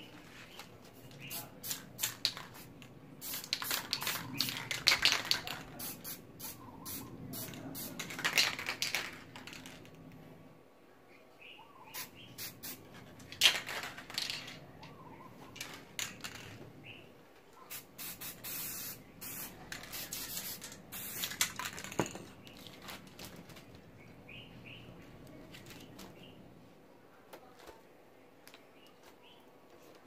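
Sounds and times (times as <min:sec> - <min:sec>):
spray paint can hissing: 0:01.2 - 0:09.0, 0:12.0 - 0:12.8, 0:17.7 - 0:21.9.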